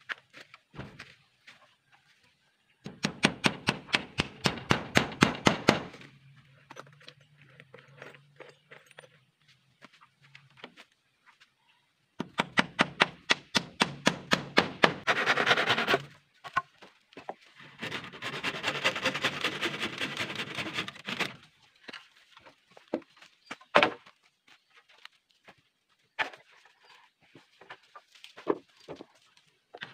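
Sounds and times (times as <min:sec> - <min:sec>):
hand saw cutting bamboo: 0:14.4 - 0:16.1, 0:17.7 - 0:21.4.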